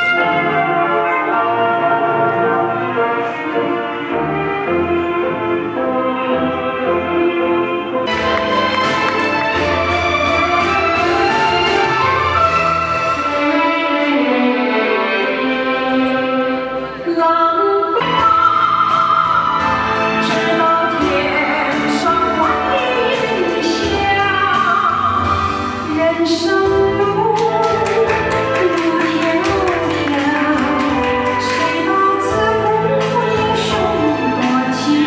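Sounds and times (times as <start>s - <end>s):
music beat: 8.1s - 14.2s
woman singing: 17.0s - 35.0s.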